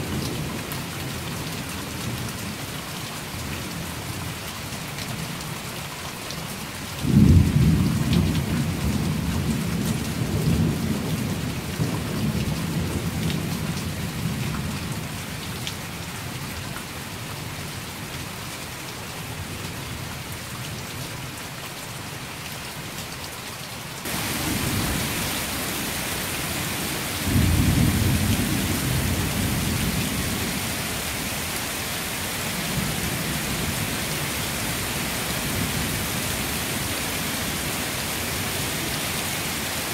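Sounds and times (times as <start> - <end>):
heavy rain falling: 0.0 - 39.9
thunder rumbling: 24.1 - 37.7.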